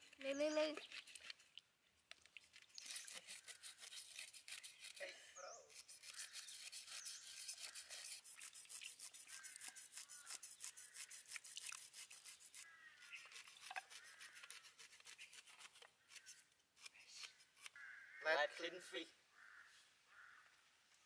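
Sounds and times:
knife scraping cucumber: 0.0s - 1.6s, 2.4s - 5.1s, 5.7s - 17.7s
knives scraping fish scales: 0.0s - 1.6s, 2.3s - 5.1s, 5.7s - 17.7s.

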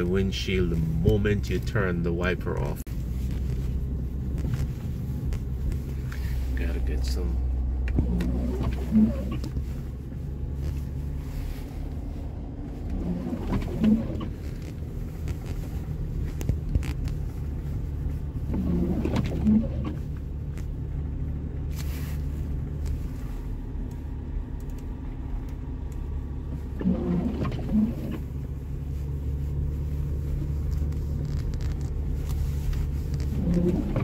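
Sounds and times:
car engine and tyres rumbling: 0.0s - 34.0s.

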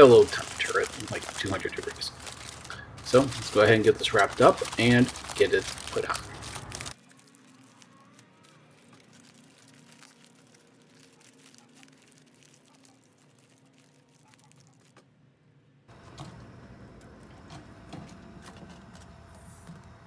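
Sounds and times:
aluminium foil crinkling: 0.0s - 15.0s.

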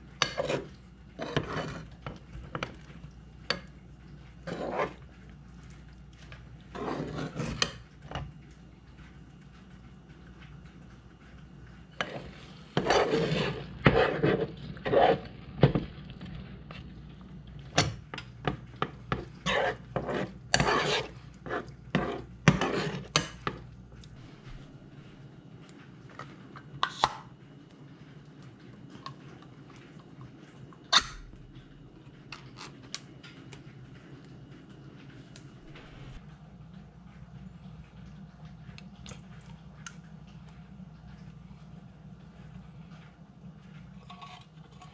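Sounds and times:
metal spoon scraping saucepan: 0.2s - 2.0s, 4.5s - 5.0s, 6.7s - 7.8s, 12.0s - 15.3s, 19.1s - 23.6s.

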